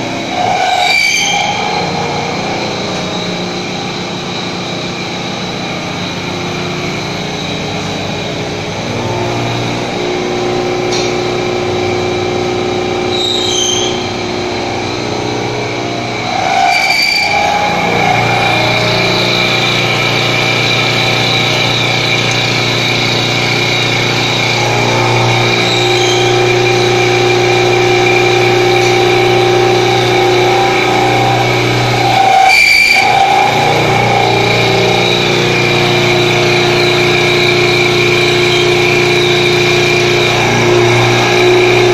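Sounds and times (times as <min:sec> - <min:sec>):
milling machine whine: 0:00.0 - 0:41.9.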